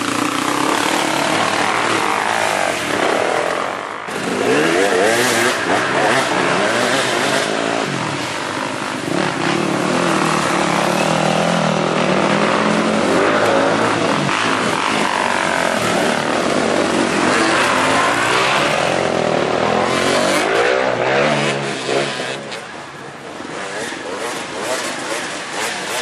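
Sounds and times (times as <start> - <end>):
dirt bike engines revving: 0.0 - 26.0.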